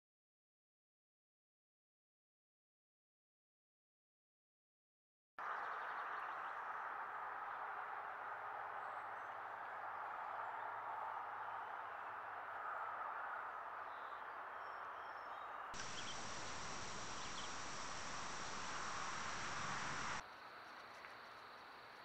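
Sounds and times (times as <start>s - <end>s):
steady hiss: 15.8s - 22.0s.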